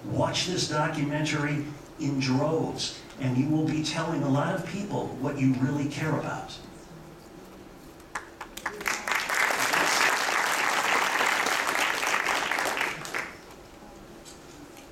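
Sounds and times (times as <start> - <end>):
audience applauding: 8.1 - 13.6.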